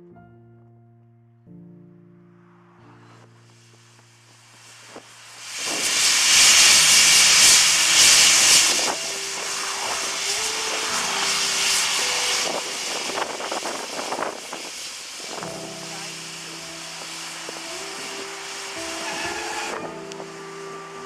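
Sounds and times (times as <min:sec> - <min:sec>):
steam locomotive hissing steam: 0:04.5 - 0:21.0.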